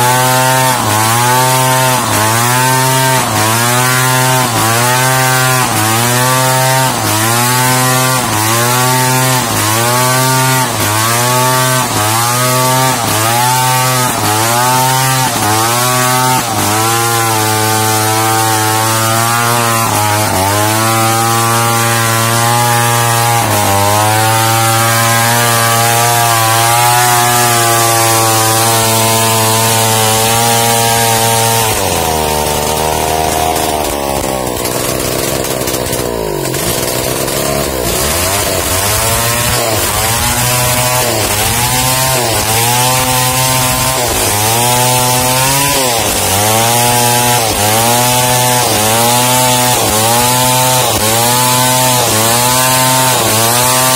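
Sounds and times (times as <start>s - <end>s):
chainsaw cutting through timber: 0.0s - 53.9s.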